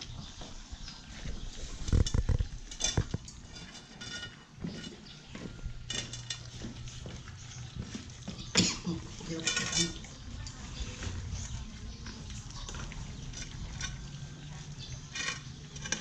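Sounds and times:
metal bowls clinking and knocking: 2.0 - 7.4, 8.0 - 11.2, 11.9 - 16.0
puppies whining: 5.0 - 16.0.

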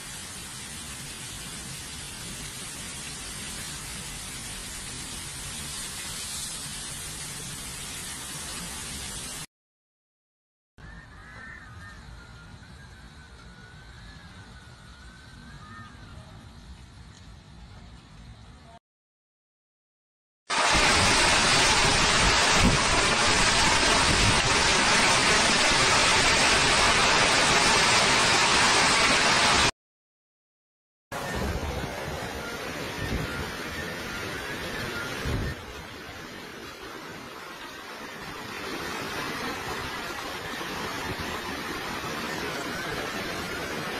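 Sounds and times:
quieter rain: 0.0 - 9.5, 20.5 - 29.7, 31.1 - 43.9
torrential rain and wind: 0.0 - 9.5, 11.7 - 18.8, 20.5 - 29.7, 31.2 - 43.9.

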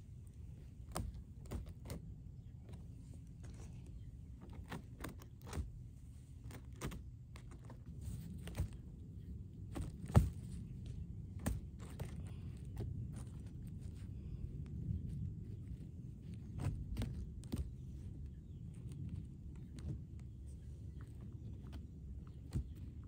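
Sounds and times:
hands rustling on plastic fabric: 0.0 - 23.0
low steady rumble: 0.0 - 23.0.

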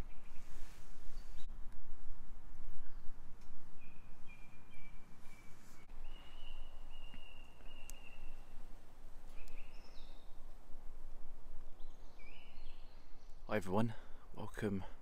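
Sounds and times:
bird whistling song: 3.8 - 8.6, 9.3 - 10.3, 11.8 - 13.3.

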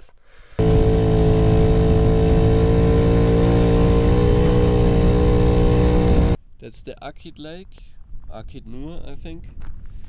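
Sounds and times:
moped engine running: 0.6 - 6.4.

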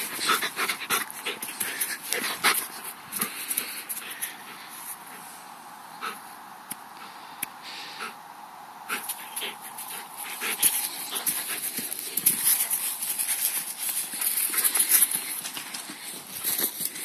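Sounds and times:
footfalls rustling on dry grass: 9.0 - 17.0.

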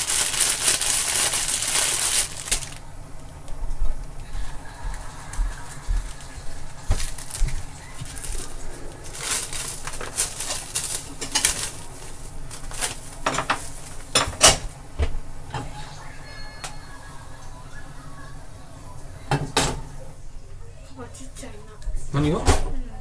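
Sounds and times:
dishes and utensils clinking: 6.9 - 11.9, 13.2 - 14.7, 19.3 - 20.0.

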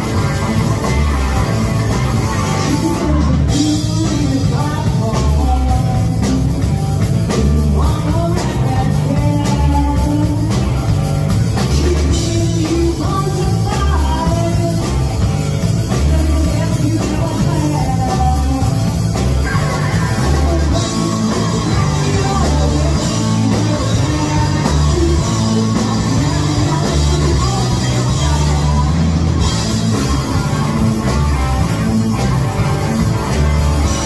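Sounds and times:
rock band playing: 0.0 - 34.0
woman singing: 2.6 - 6.7, 7.3 - 10.7, 11.6 - 15.2, 15.8 - 29.1.

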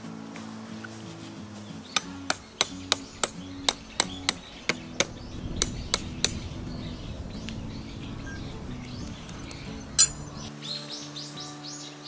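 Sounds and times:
metal tent stakes being struck: 2.0 - 6.8, 8.9 - 10.5.

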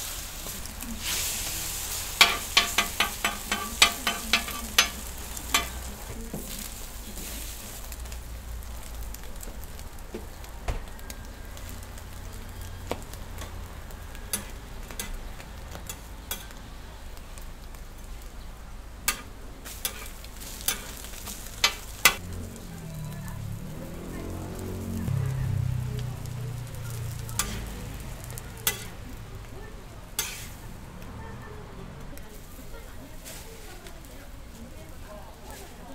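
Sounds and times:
bread sizzling on griddle: 0.0 - 35.9
sharp cooking clicks: 1.4 - 6.9, 7.8 - 18.4, 19.0 - 22.4, 24.0 - 29.5, 30.1 - 30.6.

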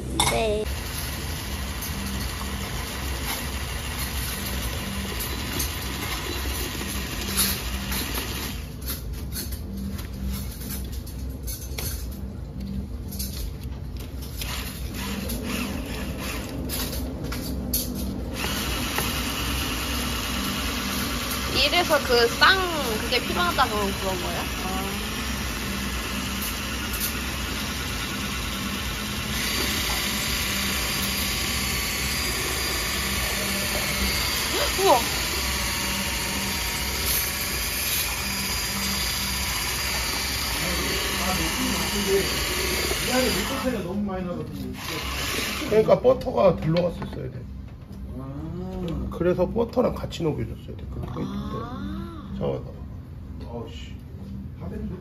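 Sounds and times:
small motor humming: 14.4 - 17.0, 18.3 - 43.9.

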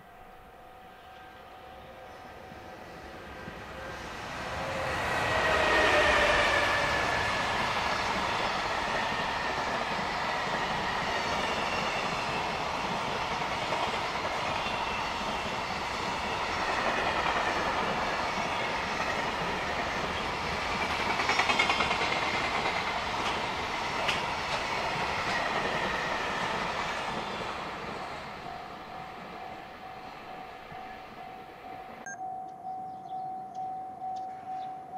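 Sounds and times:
train wheels clattering: 5.2 - 29.3.

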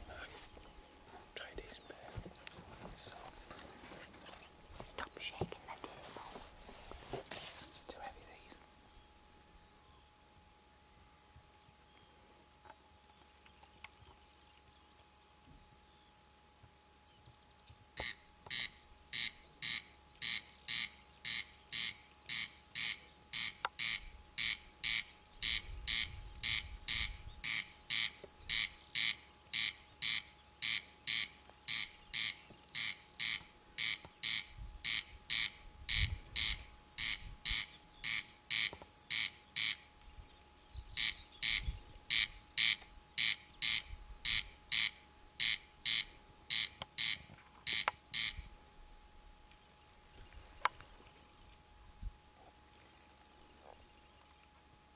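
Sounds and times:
corn crake rasping call: 18.0 - 39.9, 40.9 - 48.5.

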